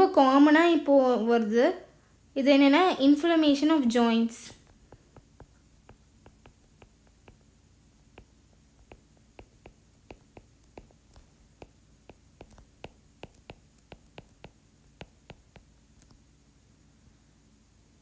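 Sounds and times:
stylus tapping on tablet screen: 4.6 - 16.3.

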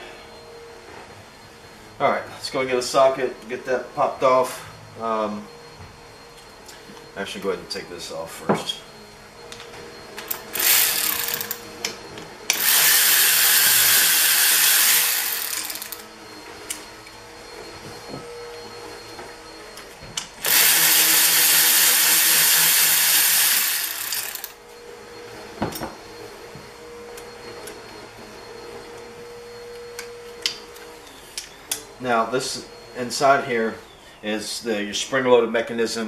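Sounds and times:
pneumatic air ratchet running: 10.3 - 11.6, 12.5 - 16.0, 20.4 - 24.6
tools and parts clinking: 25.6 - 26.0.

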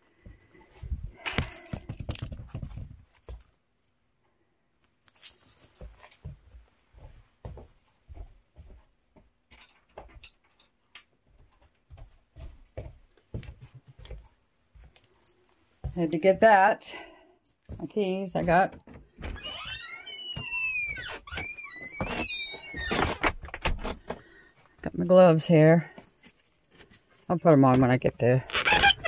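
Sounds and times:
keys jingling: 1.2 - 3.5, 5.0 - 6.4
small clicks knocks and rustles: 5.0 - 16.0.

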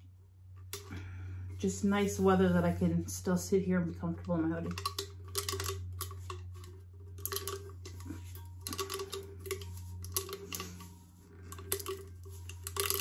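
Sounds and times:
steady low hum: 0.0 - 13.0
paper and tape crinkling: 4.6 - 13.0.

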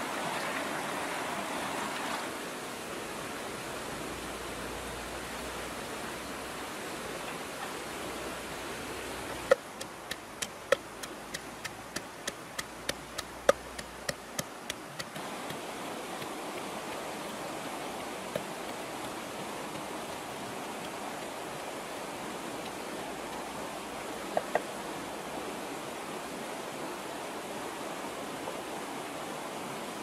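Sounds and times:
fast river rushing: 0.0 - 30.0
pestle pounding in a mortar: 9.5 - 15.6.

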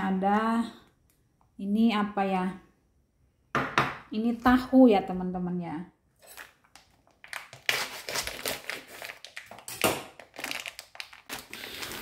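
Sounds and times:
thin plastic bag crinkling: 6.2 - 12.0.

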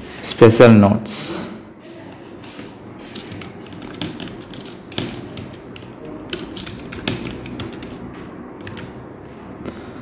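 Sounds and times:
keyboard typing: 2.1 - 9.8.

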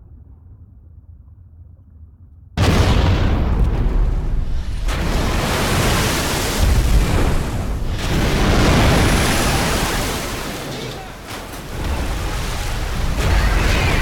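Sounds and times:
water rushing: 4.4 - 14.0.

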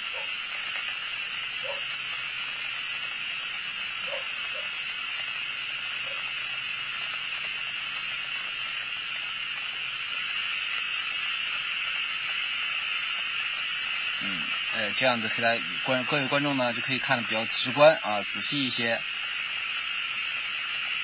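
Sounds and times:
high-pitched hiss: 0.0 - 21.0.

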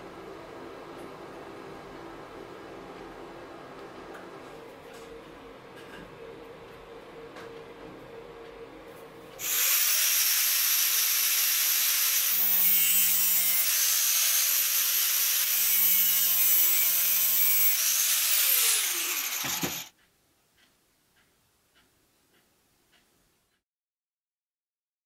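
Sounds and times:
rotary power tool cutting metal: 9.4 - 19.9.

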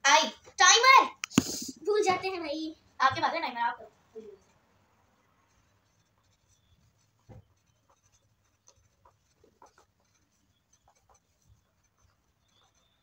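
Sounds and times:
pencils scratching on paper: 0.1 - 13.0.

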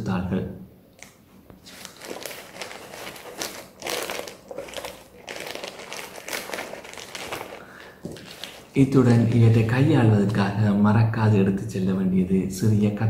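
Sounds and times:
packaging crinkling and rustling: 1.6 - 10.4.

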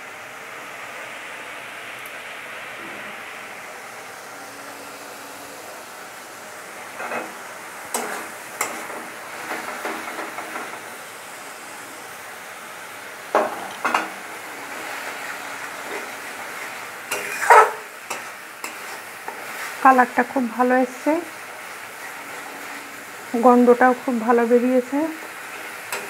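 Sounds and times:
paste sizzling in oil: 3.4 - 26.0
spatula scraping a pan: 6.9 - 10.9, 13.9 - 20.3, 21.4 - 23.8, 25.2 - 26.0.

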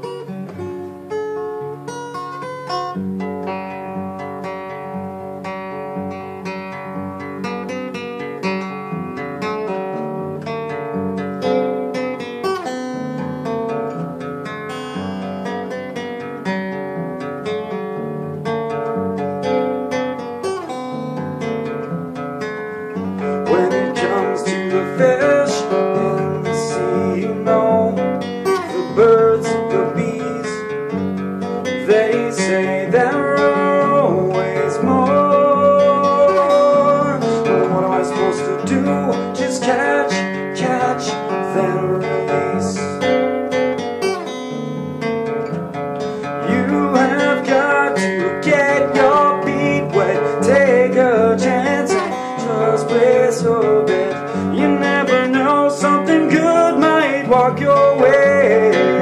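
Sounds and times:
acoustic guitar strummed and picked: 0.0 - 59.0
man singing: 23.3 - 30.9, 31.6 - 43.2, 46.2 - 59.0.

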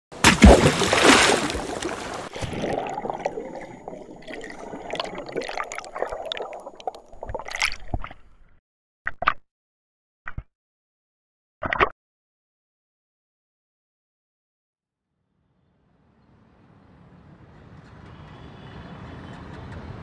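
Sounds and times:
underwater bubbling and gurgling: 1.5 - 8.2.

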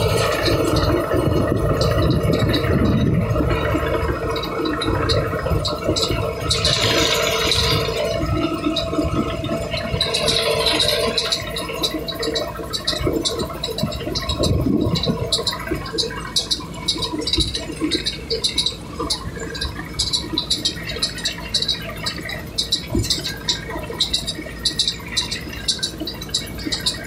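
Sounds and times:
machinery clattering: 0.0 - 27.0
tractor rumble: 0.0 - 27.0.

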